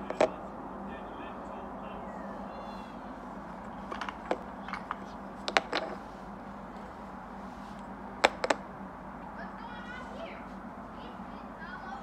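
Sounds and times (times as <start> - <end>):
wooden toy blocks clacking: 0.0 - 0.3, 3.7 - 6.0, 8.2 - 8.6.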